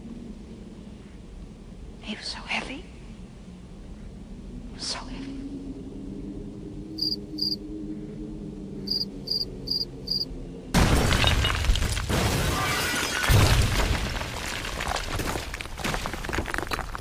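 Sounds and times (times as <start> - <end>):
low steady hum: 0.0 - 11.7
crickets chirping: 5.8 - 7.8, 8.7 - 10.6
glass shattering: 10.8 - 16.8
debris crackling: 10.8 - 17.0.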